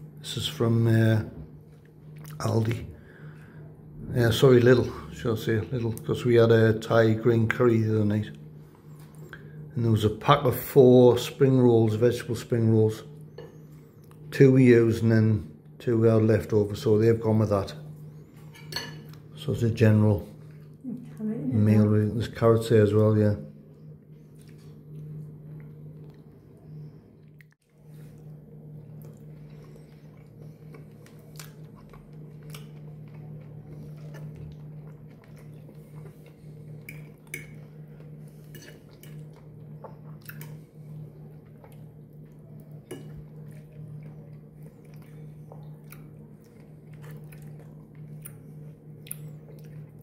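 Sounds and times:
steady low hum: 0.0 - 50.0
man chewing food: 1.6 - 2.5, 8.6 - 9.6, 13.2 - 14.3, 23.7 - 50.0.

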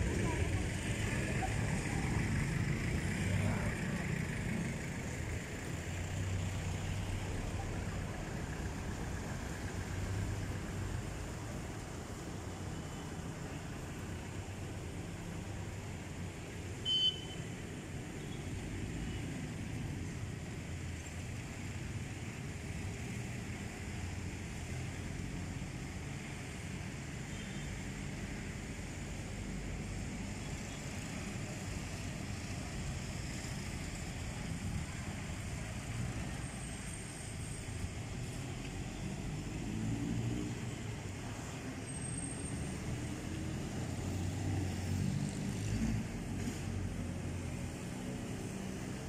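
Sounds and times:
street traffic rumble: 0.0 - 49.0.

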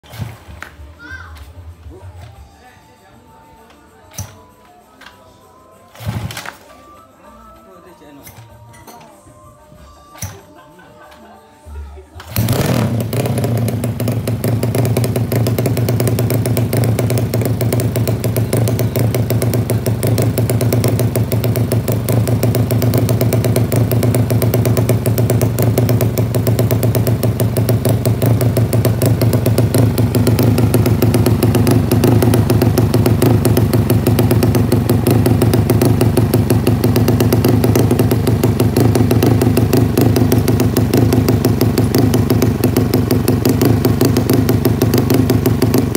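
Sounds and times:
motorcycle engine running: 12.2 - 45.9.

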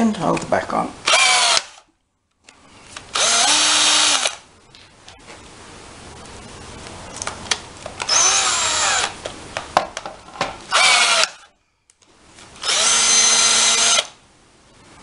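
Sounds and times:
cordless drill running: 1.1 - 1.8, 3.1 - 4.4, 8.1 - 9.2, 10.7 - 11.5, 12.6 - 14.2.

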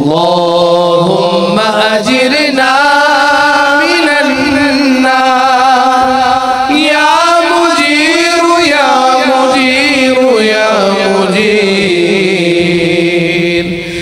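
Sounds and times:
man chanting: 0.0 - 14.0.

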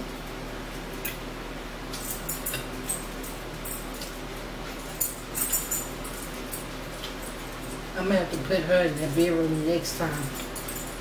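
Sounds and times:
forks clinking on plates: 1.9 - 4.1, 4.8 - 7.8.

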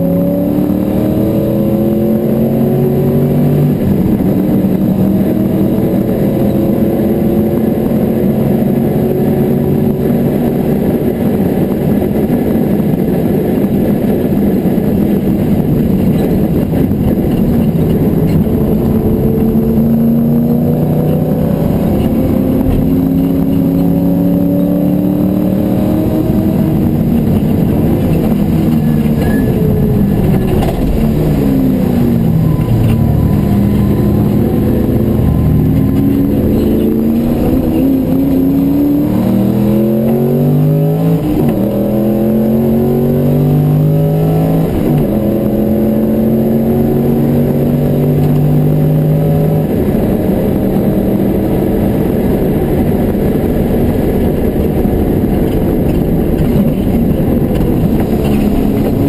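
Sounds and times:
car engine revving in cabin: 0.0 - 59.0
gear shifts: 14.3 - 42.3, 49.6 - 59.0.

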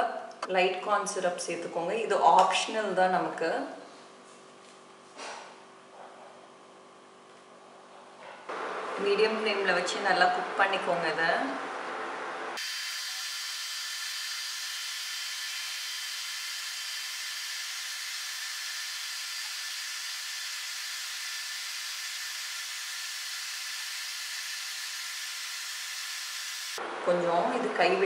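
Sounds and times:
cooling fan hiss: 8.5 - 27.6.

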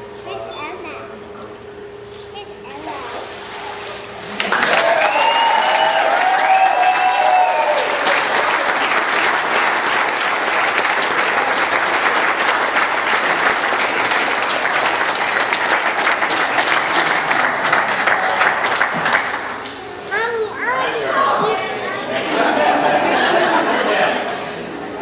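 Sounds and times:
people clapping: 4.3 - 20.3
voices calling out and cheering: 4.4 - 9.3, 19.7 - 24.3.

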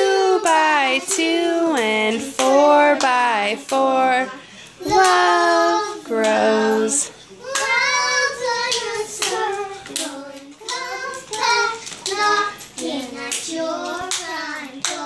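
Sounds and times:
girls singing: 0.0 - 15.0
hand claps: 8.7 - 15.0.

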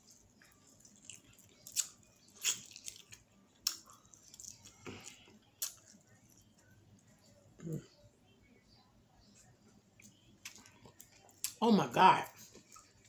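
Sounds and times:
wet chewing: 0.0 - 7.7, 9.4 - 11.6, 12.3 - 13.0
lip smacks: 1.0 - 6.0.

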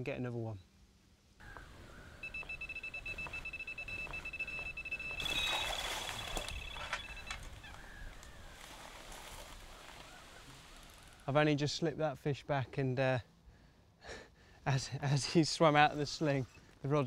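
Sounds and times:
bite alarm high beeps: 2.0 - 7.7.

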